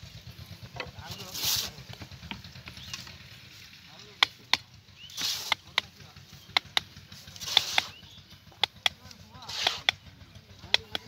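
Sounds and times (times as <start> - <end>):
scratchy rushes of noise: 1.0 - 1.8, 5.1 - 5.6, 9.4 - 9.9
hammer striking steel chisel: 5.2 - 5.9, 6.5 - 8.0, 8.6 - 10.0.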